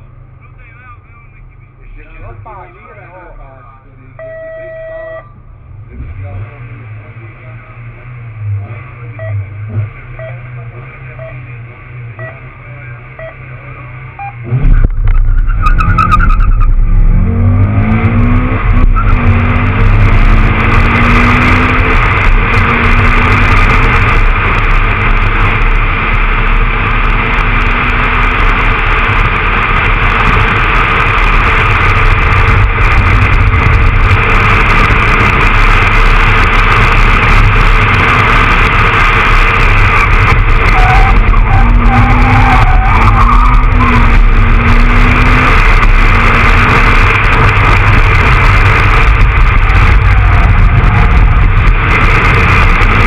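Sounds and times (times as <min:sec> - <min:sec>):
wind and road rush: 0:00.0 - 0:53.0
car engine revving hard: 0:05.8 - 0:53.0.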